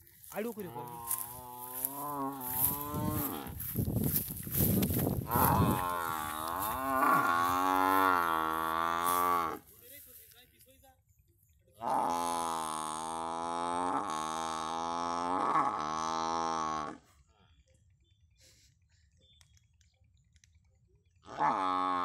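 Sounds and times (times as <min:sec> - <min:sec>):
water buffalo bellowing: 0:00.6 - 0:03.6, 0:05.2 - 0:09.6, 0:11.8 - 0:17.1, 0:21.2 - 0:22.0.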